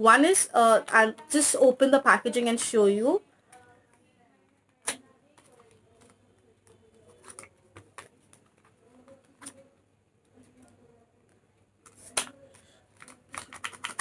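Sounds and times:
packaging clicks and crinkles: 0:04.7 - 0:09.7, 0:11.8 - 0:14.0.

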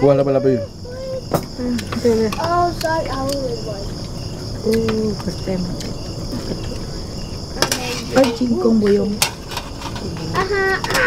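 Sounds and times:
insects chirring: 0:00.0 - 0:11.0
voices: 0:00.0 - 0:11.0.

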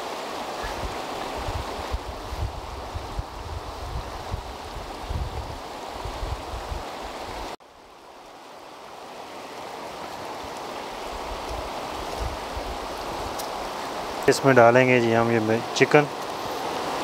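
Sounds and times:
wind buffeting microphone: 0:00.6 - 0:07.5, 0:10.9 - 0:14.4.

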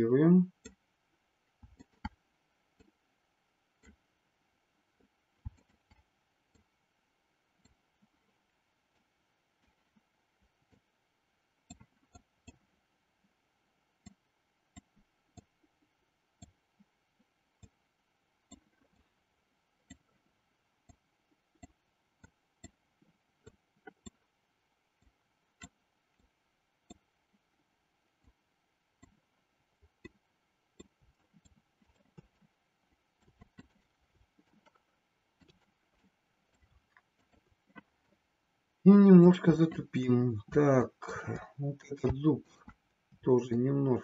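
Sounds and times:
computer mouse clicking: 0:05.5 - 0:06.7, 0:23.4 - 0:24.2, 0:25.0 - 0:27.0, 0:30.0 - 0:32.6, 0:33.2 - 0:38.2.

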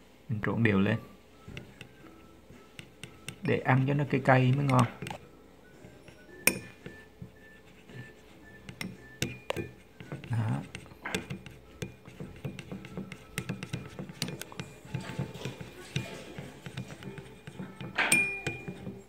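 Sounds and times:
chopsticks clicking on ceramic bowl: 0:04.5 - 0:05.2, 0:08.7 - 0:14.8.

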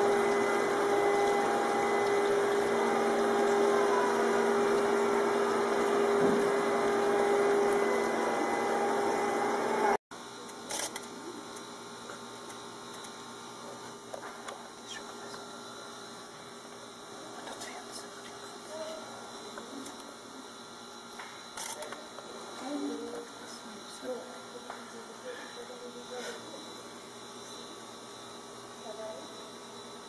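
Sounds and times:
running water hissing: 0:00.0 - 0:10.0
pond pump humming: 0:00.0 - 0:17.3
indoor room hum: 0:00.0 - 0:30.0.

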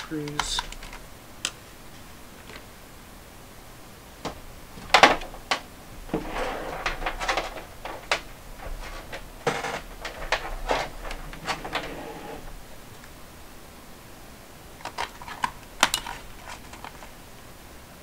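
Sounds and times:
objects rustling and clattering: 0:04.2 - 0:13.1, 0:14.8 - 0:17.2.

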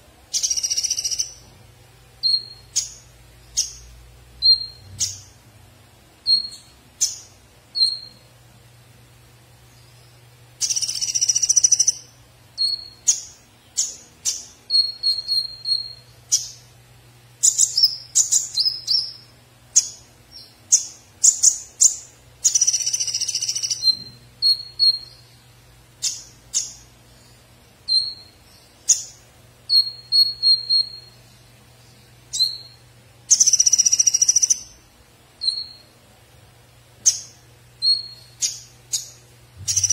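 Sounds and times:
bird chirping and whistling: 0:00.3 - 0:01.5, 0:02.2 - 0:05.4, 0:06.2 - 0:08.3, 0:09.8 - 0:16.7, 0:17.4 - 0:25.4, 0:26.0 - 0:26.9, 0:27.8 - 0:31.3, 0:32.3 - 0:34.8, 0:35.4 - 0:35.9, 0:37.0 - 0:39.9.

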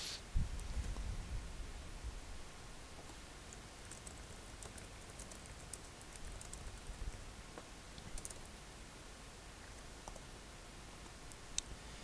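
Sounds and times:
faint light clicks and ticks: 0:03.0 - 0:08.6, 0:09.6 - 0:10.3.

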